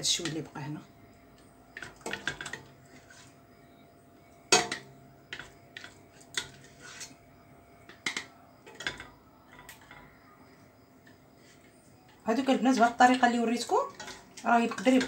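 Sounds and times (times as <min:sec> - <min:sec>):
wooden spoon scraping metal pot: 0:01.8 - 0:03.8, 0:04.5 - 0:10.2, 0:13.3 - 0:15.0.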